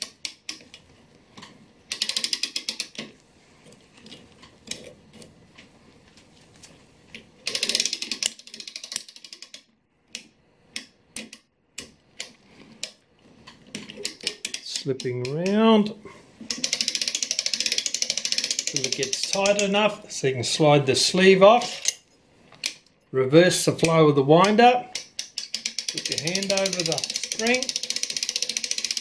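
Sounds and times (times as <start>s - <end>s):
ratchet clicking: 0.0s - 0.8s, 1.4s - 3.1s, 7.4s - 13.0s, 13.7s - 15.6s, 16.5s - 19.8s, 23.8s - 29.0s.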